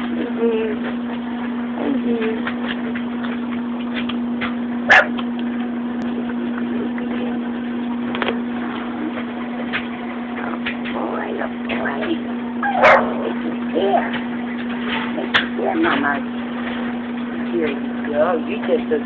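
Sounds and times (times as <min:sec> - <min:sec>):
steady hum: 0:00.0 - 0:19.0
puppy whimpering: 0:12.6 - 0:13.7.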